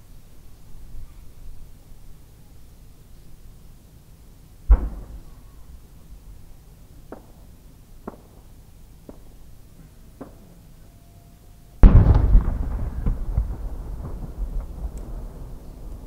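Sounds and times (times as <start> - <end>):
faint firework pops: 4.7 - 5.3, 7.1 - 10.6, 11.8 - 15.2
firework shell boom: 11.8 - 13.6
rolling echoes: 11.8 - 16.0.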